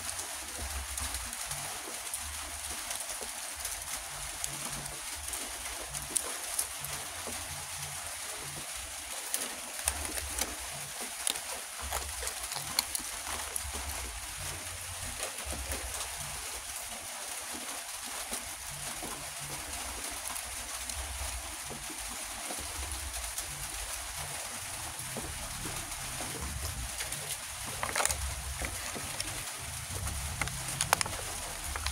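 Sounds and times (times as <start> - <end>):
plastic blister pack crinkling: 3.9 - 16.6, 24.8 - 31.9.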